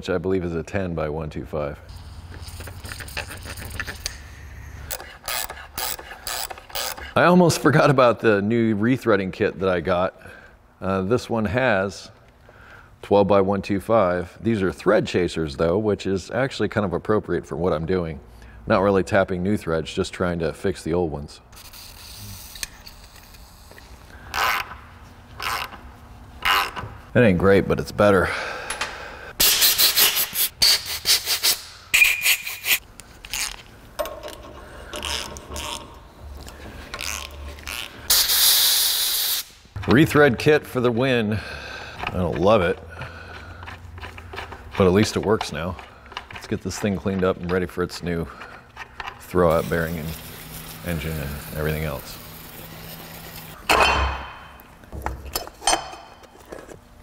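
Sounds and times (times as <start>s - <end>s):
compressed air blasts from blow gun: 38.1s - 39.7s.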